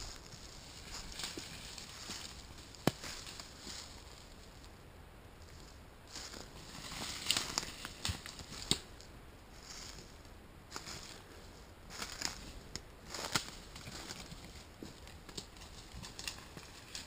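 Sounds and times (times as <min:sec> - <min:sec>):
footsteps crunching dry leaves: 0:00.0 - 0:04.6, 0:05.5 - 0:17.0.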